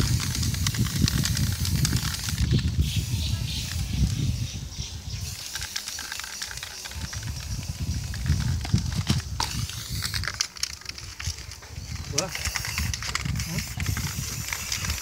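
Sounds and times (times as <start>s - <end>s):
spray paint hiss: 0.0s - 15.0s.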